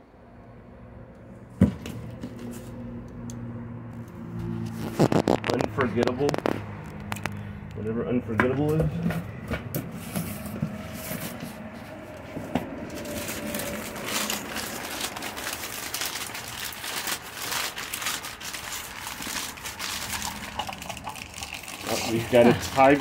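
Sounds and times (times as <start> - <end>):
paper rustling and crinkling: 4.5 - 6.6, 10.0 - 23.0.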